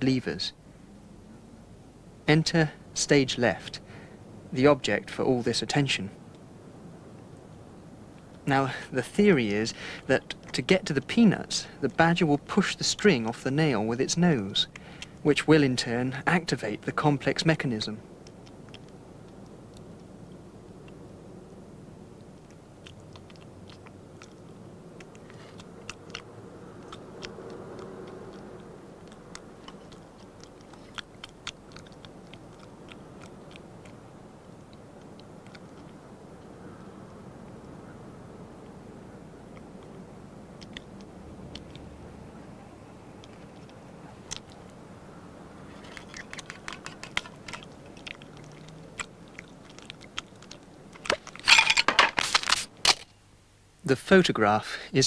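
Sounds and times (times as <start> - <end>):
steady low hum: 0.0 - 55.0
badger crunching peanuts: 22.2 - 36.0, 43.2 - 44.8, 45.6 - 53.1.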